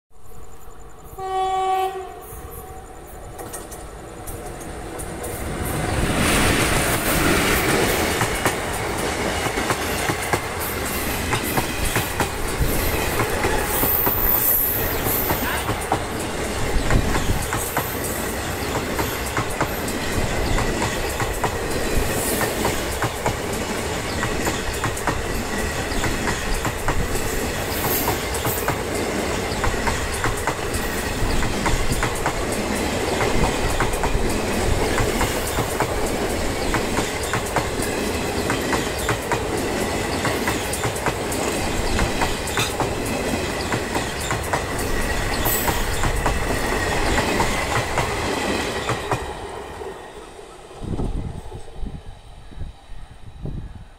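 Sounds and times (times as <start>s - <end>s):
train horn blast: 1.1s - 2.8s
train wheels clattering over rail joints: 3.3s - 49.5s.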